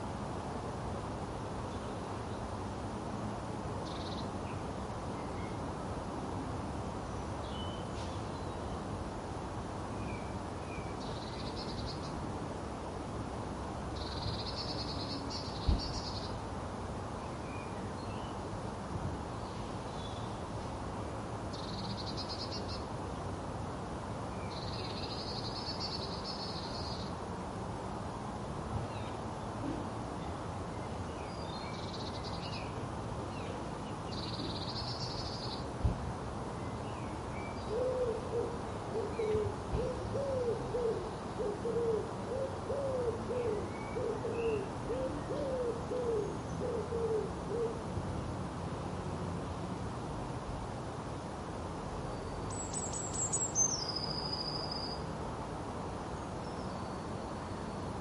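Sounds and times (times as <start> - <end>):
pigeon cooing: 37.7 - 47.8.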